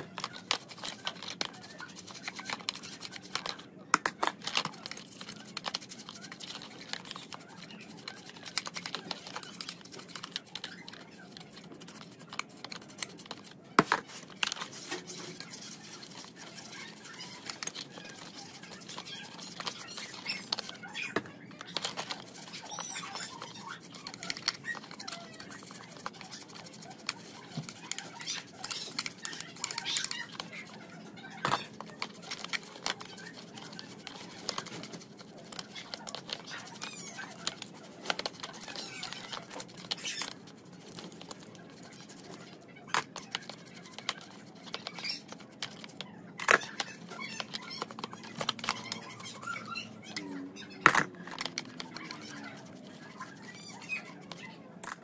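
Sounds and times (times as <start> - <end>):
metal parts clinking: 14.2 - 14.8.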